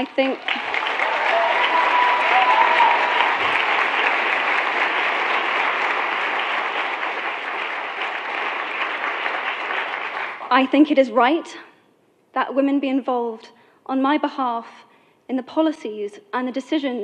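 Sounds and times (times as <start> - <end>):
audience applauding: 0.2 - 10.5.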